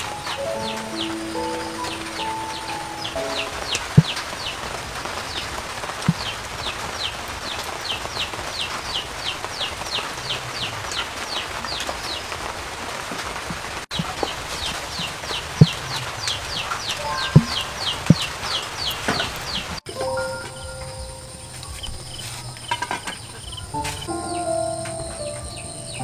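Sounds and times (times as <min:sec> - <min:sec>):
steady hiss: 0:00.0 - 0:26.0
bird peeping: 0:00.2 - 0:04.6, 0:14.0 - 0:19.7.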